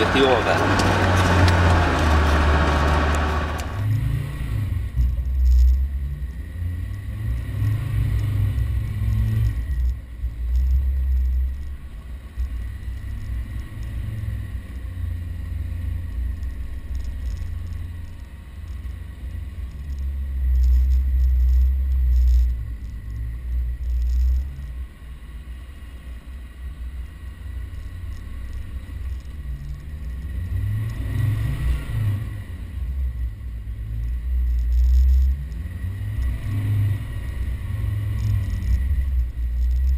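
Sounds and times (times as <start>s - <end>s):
engine rumbling and revving: 0.0s - 39.9s.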